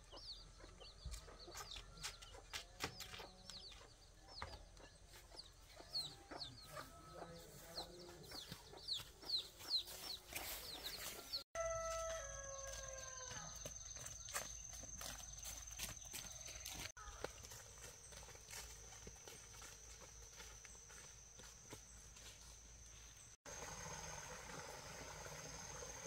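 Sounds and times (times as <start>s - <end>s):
chickens clucking: 0.0s - 11.4s
rooster crowing: 11.6s - 13.6s.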